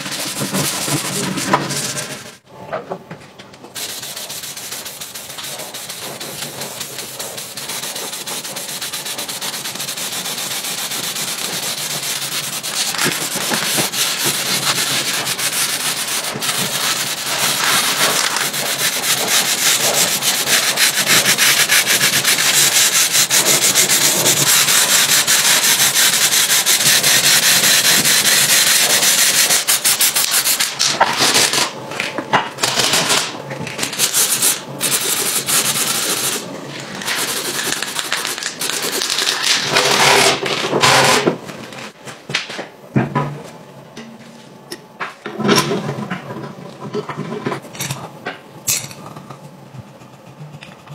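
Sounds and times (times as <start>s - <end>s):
masking tape rubbing: 3.8s - 31.7s, 32.6s - 41.2s.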